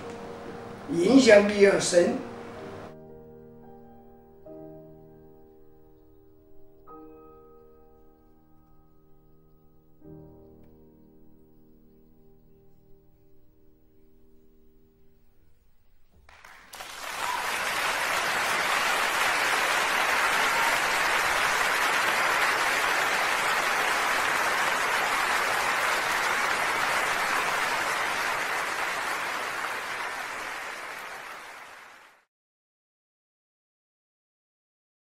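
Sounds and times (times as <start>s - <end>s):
piano music: 0.0s - 15.7s, 19.0s - 30.6s
audience applauding: 16.3s - 32.3s.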